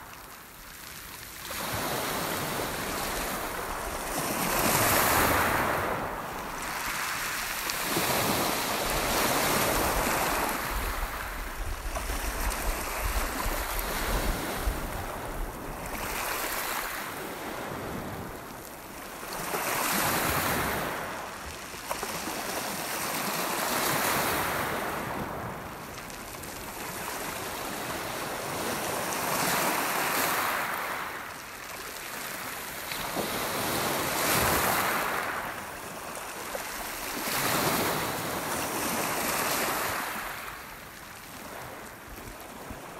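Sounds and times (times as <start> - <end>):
waves breaking on pebble beach: 0.0 - 42.9
wind buffeting microphone: 2.3 - 16.7.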